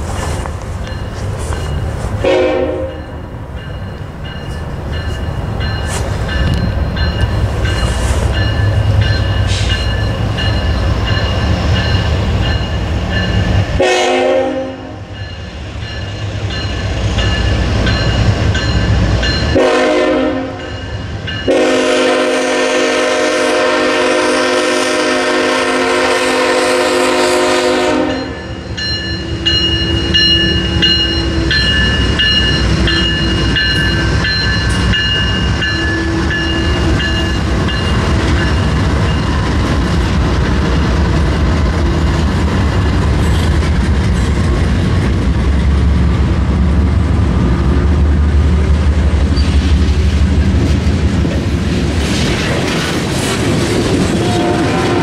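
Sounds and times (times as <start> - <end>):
diesel locomotive engine rumble: 0.0 - 55.0
crossing bell ringing: 0.4 - 14.0, 14.6 - 22.2, 27.8 - 39.6
train air horn blasts: 2.2 - 3.1, 13.8 - 15.1, 19.5 - 20.7, 21.5 - 28.5, 54.1 - 55.0.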